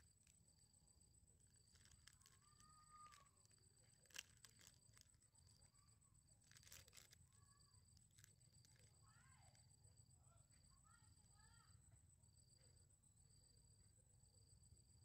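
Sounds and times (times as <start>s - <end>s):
food packet crinkling and tearing: 1.5s - 5.2s, 6.4s - 9.0s.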